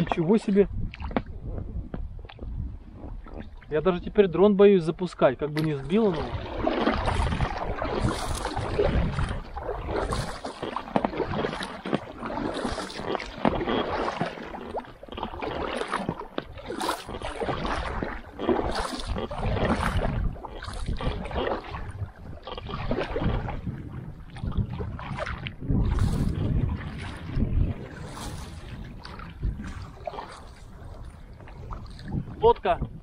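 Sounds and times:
paddle splashing in water: 0:00.0 - 0:04.2, 0:05.2 - 0:33.0.

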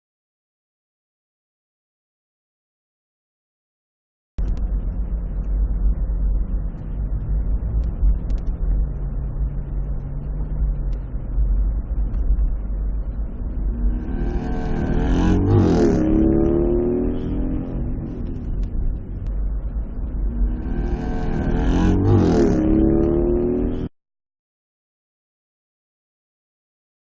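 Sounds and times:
car road and engine rumble: 0:04.4 - 0:23.9
vehicle revving past: 0:13.8 - 0:18.9, 0:20.4 - 0:23.9.

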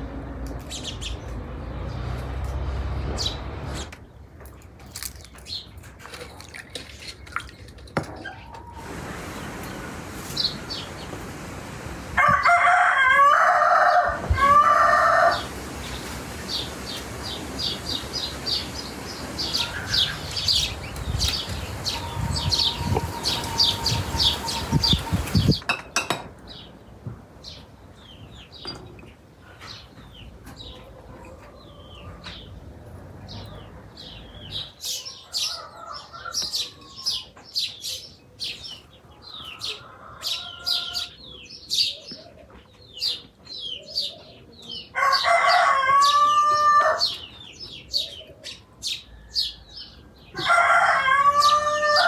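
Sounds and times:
small birds chirping: 0:00.4 - 0:02.5, 0:03.1 - 0:11.7, 0:14.7 - 0:25.8, 0:26.4 - 0:50.6
rooster crowing: 0:12.2 - 0:15.5, 0:39.6 - 0:41.2, 0:44.9 - 0:47.2, 0:50.3 - 0:52.0.

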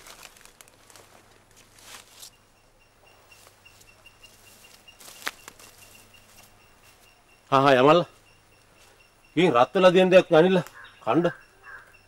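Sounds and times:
soft rustling: 0:00.0 - 0:02.4, 0:03.3 - 0:07.2
high chirping: 0:02.2 - 0:12.0.

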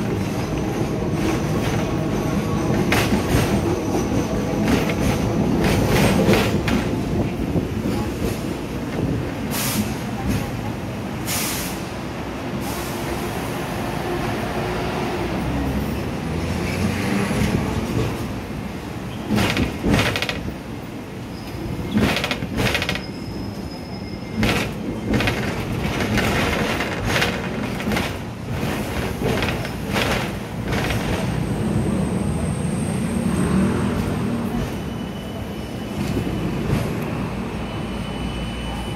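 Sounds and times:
clacks and knocks from tram wheels: 0:00.0 - 0:09.2, 0:19.1 - 0:20.7, 0:21.7 - 0:23.3, 0:24.3 - 0:31.4
tram rumbling and rattling: 0:00.0 - 0:38.9.

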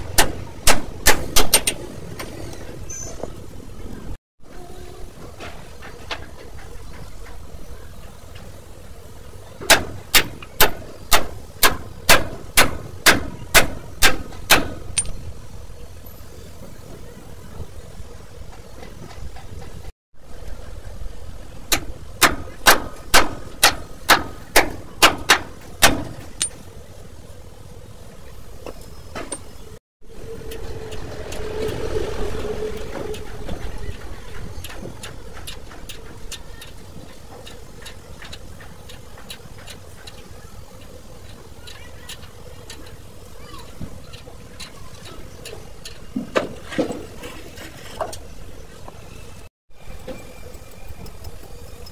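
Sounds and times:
rushing hum: 0:00.0 - 0:51.9
low engine hum: 0:30.0 - 0:36.5.

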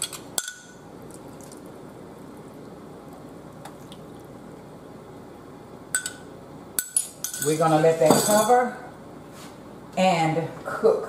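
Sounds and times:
broth pouring and dripping: 0:01.0 - 0:04.6.

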